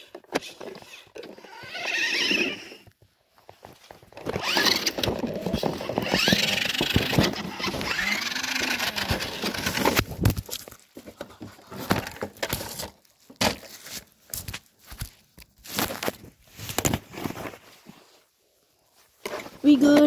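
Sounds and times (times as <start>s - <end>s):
handling noise rustling and knocking: 2.9s - 18.1s
footsteps in dry grass and leaves: 13.0s - 16.7s.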